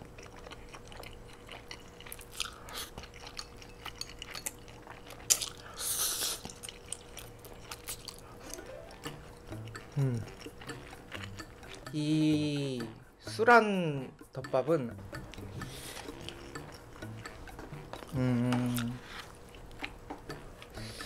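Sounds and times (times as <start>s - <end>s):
chewing: 0.0s - 12.0s, 15.1s - 21.0s
wet mouth clicks: 5.2s - 12.0s, 15.2s - 21.0s.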